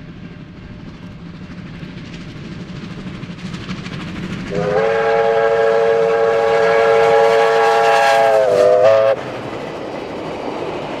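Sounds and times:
steam locomotive exhaust beating: 0:00.0 - 0:11.0
steam whistle chord: 0:04.5 - 0:09.2.

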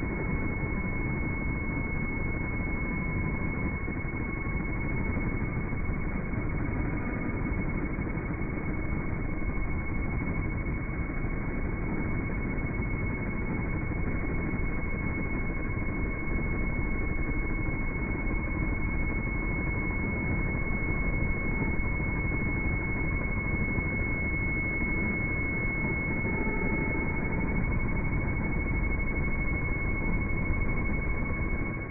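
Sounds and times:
low mechanical rumble: 0:21.0 - 0:31.9.

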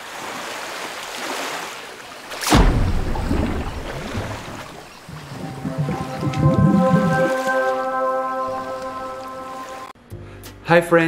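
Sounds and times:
whoosh into deep splash: 0:02.4 - 0:07.8
underwater rumbling and bubbling: 0:02.7 - 0:07.6.

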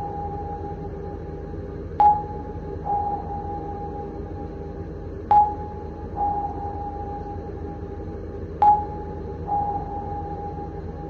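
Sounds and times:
sonar ping: 0:00.0 - 0:00.9, 0:02.0 - 0:04.6, 0:05.3 - 0:07.8, 0:08.6 - 0:11.0
low background hum: 0:00.0 - 0:11.0.

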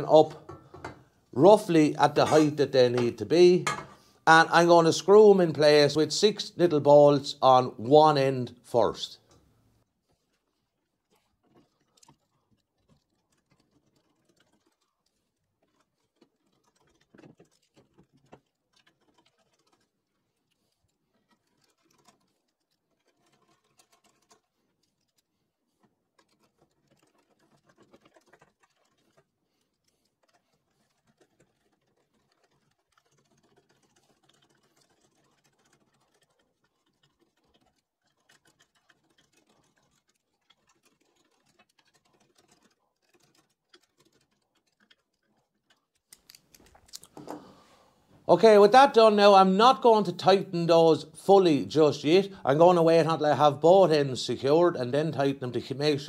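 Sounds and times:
screwdriver clicking and scraping: 0:40.9 - 0:47.4.

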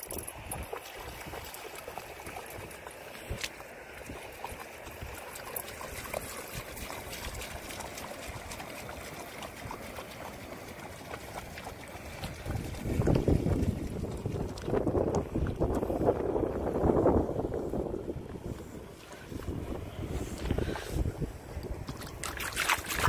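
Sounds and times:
dog splashing through water: 0:00.0 - 0:15.7, 0:21.8 - 0:23.0.

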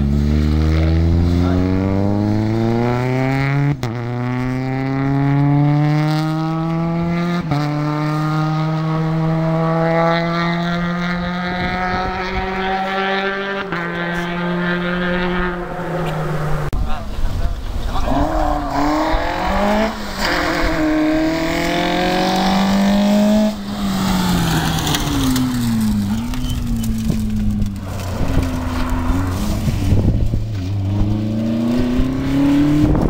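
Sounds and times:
rally car engine accelerating: 0:00.0 - 0:16.8, 0:17.8 - 0:33.0.

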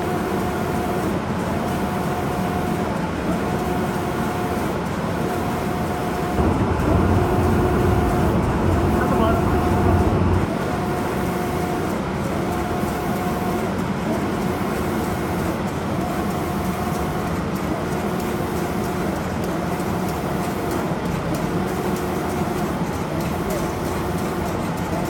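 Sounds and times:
machine humming with rushing air: 0:05.9 - 0:11.3
motor whine: 0:06.4 - 0:10.5.

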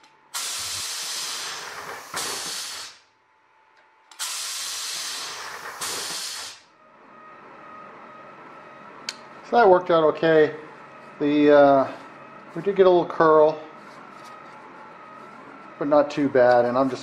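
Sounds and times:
compressed air hissing: 0:00.3 - 0:03.0, 0:04.2 - 0:06.7.

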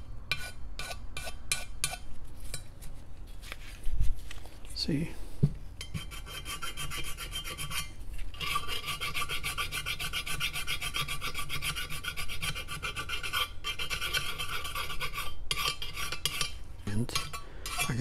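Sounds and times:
file rasping on metal: 0:00.3 - 0:02.0, 0:05.8 - 0:18.0.

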